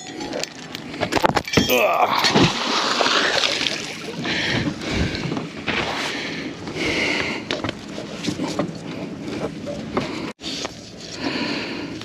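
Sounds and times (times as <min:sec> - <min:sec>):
anchor splashing into water: 0:02.0 - 0:04.7.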